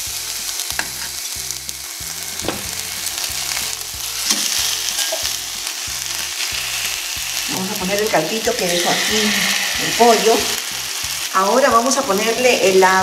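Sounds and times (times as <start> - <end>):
chicken sizzling in a frying pan: 0.0 - 13.0
light knocks in pan: 2.4 - 2.8.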